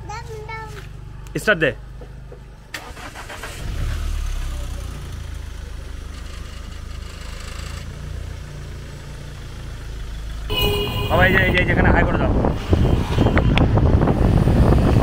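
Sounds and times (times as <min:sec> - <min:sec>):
diesel engine starting and idling: 0:02.6 - 0:10.5.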